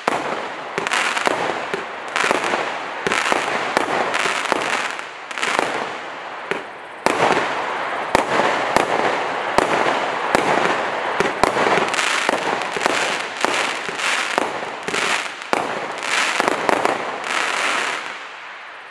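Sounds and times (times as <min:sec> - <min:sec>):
firework shots: 0:00.0 - 0:18.4
firework crackle and fizz: 0:00.0 - 0:18.9.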